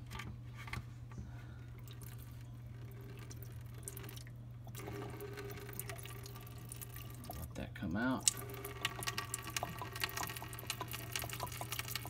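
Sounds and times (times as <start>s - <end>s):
water dripping: 3.1s - 7.5s, 8.2s - 12.0s.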